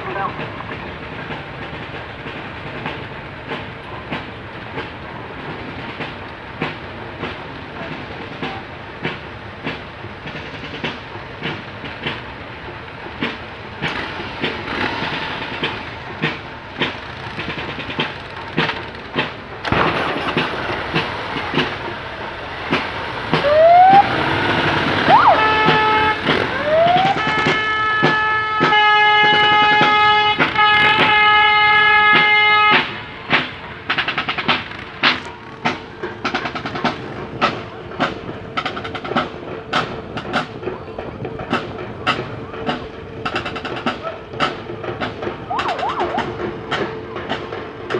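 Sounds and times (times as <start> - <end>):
marching drum beating: 0.0 - 47.9
police sirens whooping: 19.6 - 33.0, 42.2 - 47.9
long horn blast: 23.5 - 33.0.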